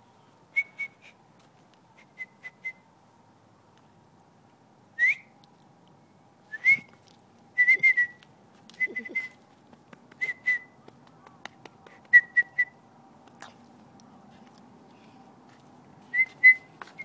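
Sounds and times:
person whistling high notes: 7.6 - 8.2, 8.8 - 9.4, 16.1 - 17.0.

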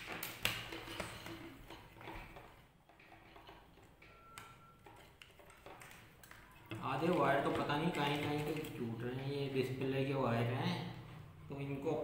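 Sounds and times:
clicks and taps of handled equipment: 0.0 - 8.8.

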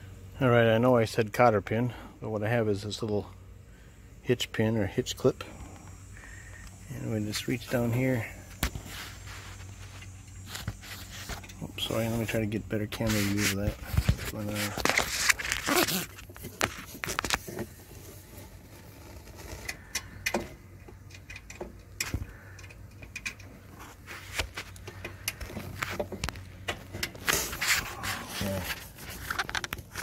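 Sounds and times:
light metal clicks and rubbing: 7.4 - 30.0
hands rustling: 27.2 - 30.0.

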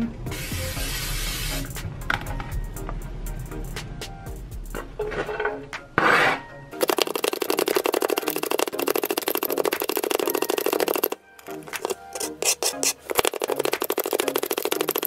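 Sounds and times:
background music: 0.0 - 15.0
plunger food chopper clicking: 6.8 - 15.0.

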